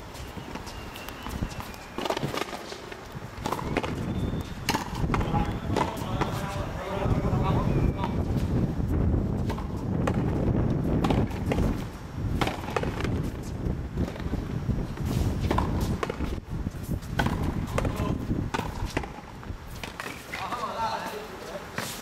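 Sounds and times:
steady low rumble: 3.1s - 19.7s.

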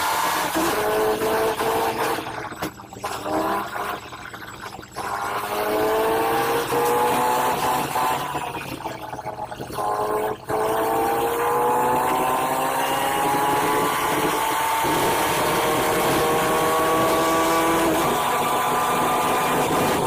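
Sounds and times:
bus engine whine accelerating: 9.8s - 20.0s.

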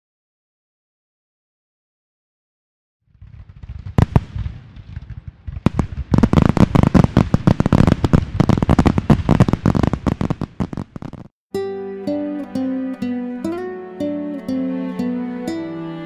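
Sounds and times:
fireworks bangs and crackling: 3.1s - 11.4s.

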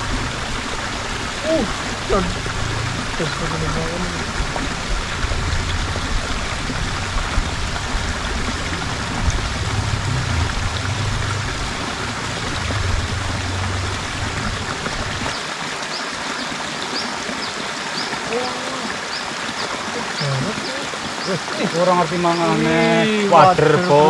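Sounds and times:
low rumble: 0.0s - 15.3s
water running into stream pool: 0.0s - 24.0s.

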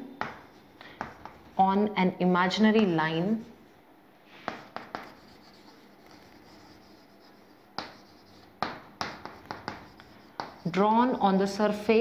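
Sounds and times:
chalk tapping and scratching on chalkboard: 0.2s - 1.7s, 4.3s - 12.0s.

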